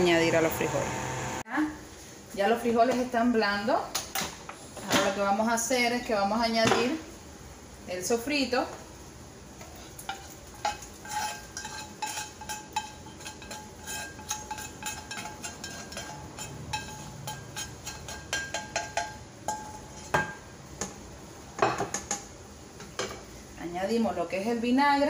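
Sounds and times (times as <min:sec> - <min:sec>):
spatula scraping frying pan: 0:09.6 - 0:20.4.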